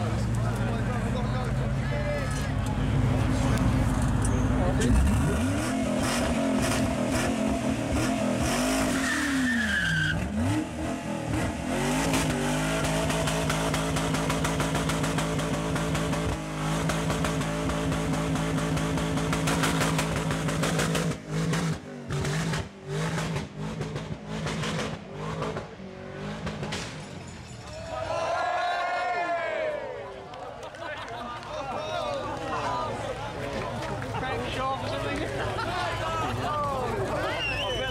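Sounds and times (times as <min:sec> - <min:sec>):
car engine revving: 0:04.7 - 0:26.9.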